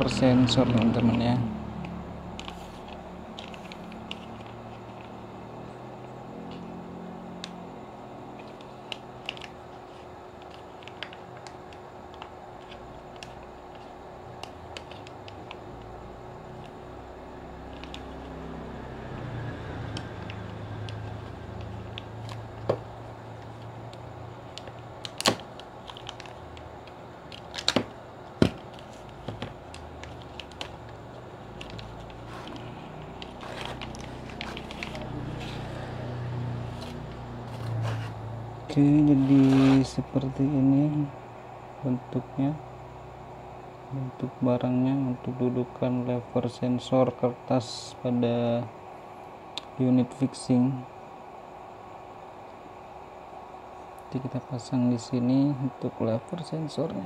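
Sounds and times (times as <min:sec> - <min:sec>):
background hum: 0:00.0 - 0:57.0
bubble wrap and plastic crackling: 0:24.5 - 0:35.7.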